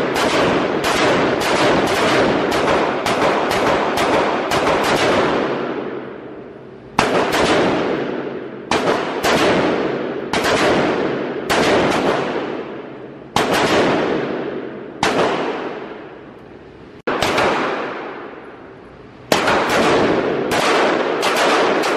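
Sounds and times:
rifle shots echoing: 0:00.0 - 0:21.9.

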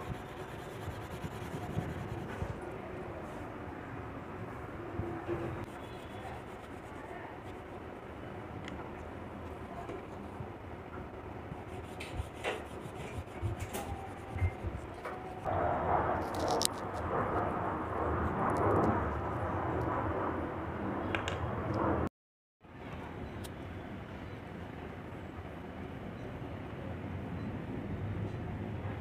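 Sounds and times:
pastel rubbing on paper: 0:00.0 - 0:02.5, 0:05.7 - 0:07.8, 0:11.7 - 0:15.5.

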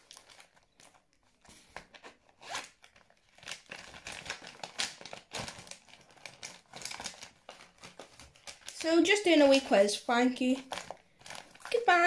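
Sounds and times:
plastic pouch rustling: 0:00.0 - 0:12.0.

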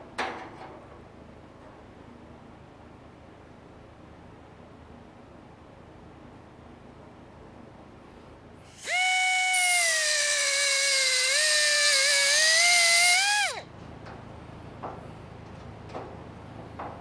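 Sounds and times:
cutoff tool whining: 0:08.7 - 0:13.7
hiss: 0:08.7 - 0:13.7.

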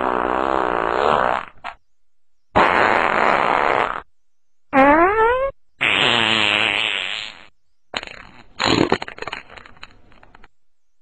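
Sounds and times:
long pitched fart: 0:00.0 - 0:01.8, 0:02.6 - 0:04.1, 0:04.8 - 0:09.9
sputtering rattling fart: 0:00.0 - 0:01.8, 0:02.6 - 0:04.1, 0:04.8 - 0:10.5.

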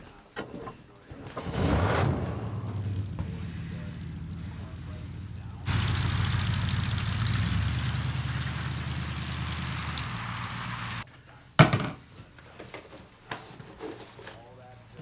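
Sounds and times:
tyres crunching on gravel: 0:01.2 - 0:11.0
truck engine hum: 0:01.4 - 0:11.0.

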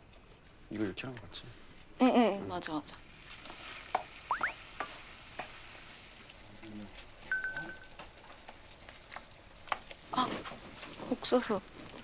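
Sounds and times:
vegetables frying in a pan: 0:00.0 - 0:12.0.

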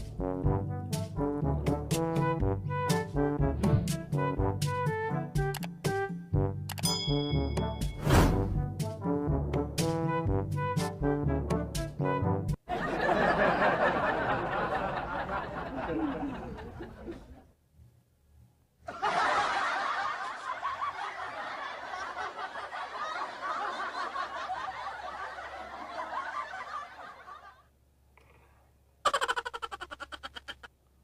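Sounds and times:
laughter: 0:12.7 - 0:17.5, 0:18.8 - 0:27.7, 0:29.0 - 0:30.7.

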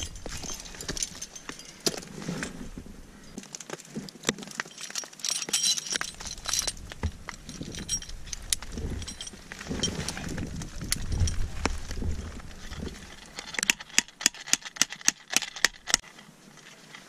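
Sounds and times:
metal climbing gear jangling: 0:00.0 - 0:03.6, 0:04.4 - 0:17.0
carabiner clicks: 0:13.2 - 0:16.1.

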